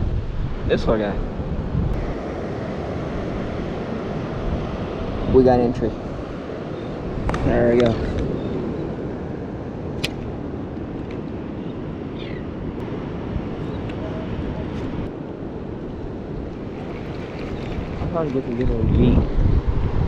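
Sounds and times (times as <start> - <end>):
wind buffeting microphone: 0.0 - 20.0
sea wash: 0.6 - 20.0
sharp click: 10.0 - 10.2.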